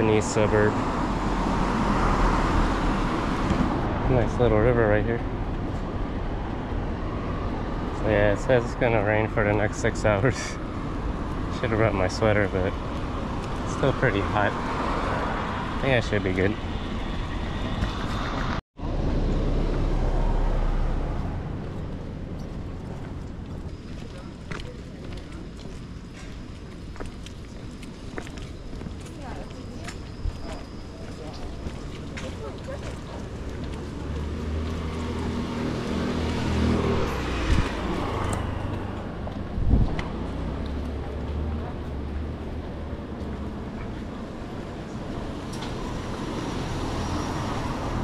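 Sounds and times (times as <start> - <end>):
car passing: 0.0 - 26.3, 30.5 - 48.0
road traffic noise: 0.0 - 48.0.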